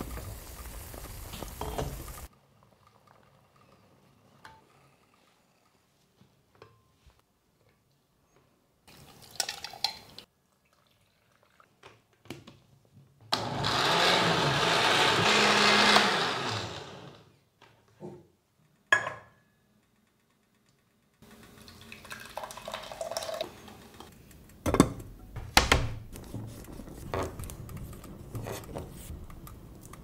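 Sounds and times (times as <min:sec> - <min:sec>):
blender running: 0:13.3 - 0:17.3.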